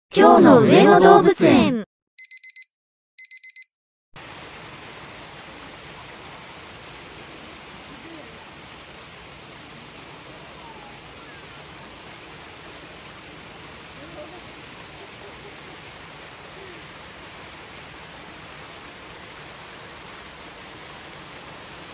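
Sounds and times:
high electronic beeps: 2.2 - 3.7.

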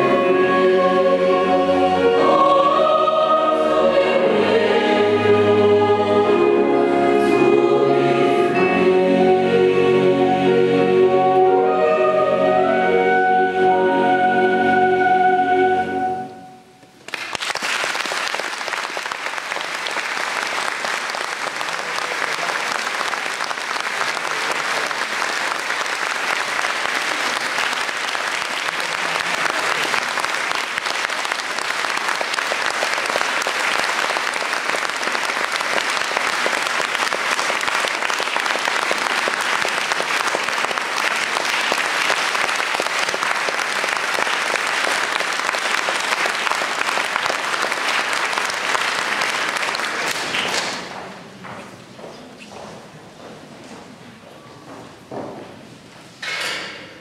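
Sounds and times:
choir with piano and strings: 0.0 - 16.7
audience applause: 17.1 - 51.3.

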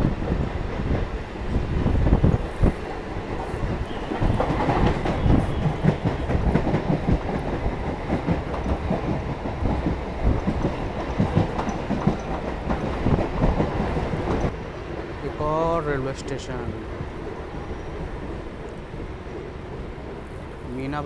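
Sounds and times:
train rumble: 0.0 - 21.0
wheels clacking over rail joints: 1.8 - 15.4.

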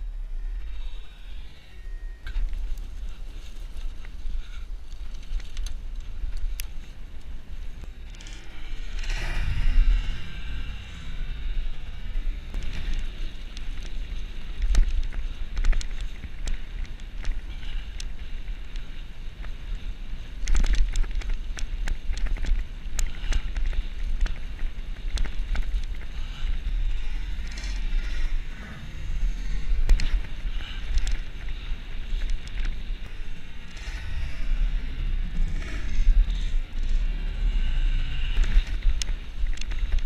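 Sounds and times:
bicycle tyre noise: 0.0 - 40.0
wind buffeting microphone: 0.0 - 40.0
bike rattling over bumps: 2.3 - 40.0.

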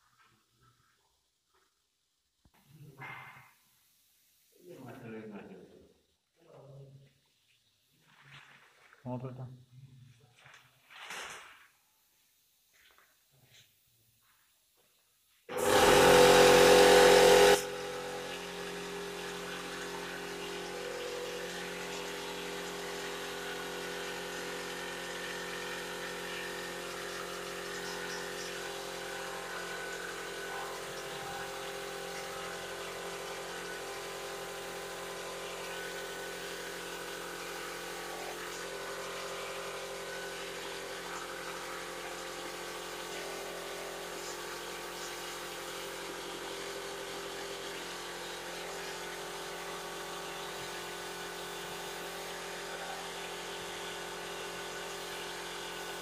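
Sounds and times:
air compressor humming: 15.4 - 56.0.

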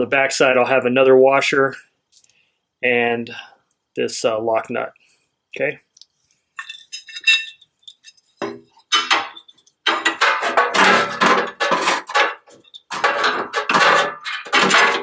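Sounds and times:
metal bolt and washers clinking: 6.6 - 15.0
metal bumper knocking and scraping: 6.6 - 15.0.

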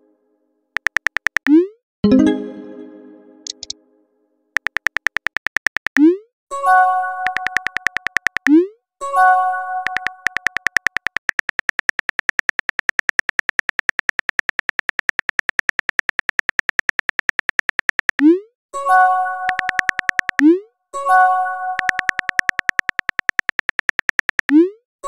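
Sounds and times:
phone keyboard typing clicks: 0.8 - 1.6, 3.4 - 3.8, 4.6 - 6.1, 7.2 - 8.6, 9.8 - 18.3, 19.5 - 20.6, 21.8 - 24.6.

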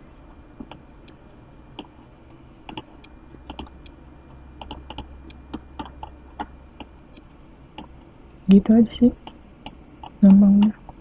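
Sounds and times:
mouse and keyboard clicks: 2.7 - 3.7.

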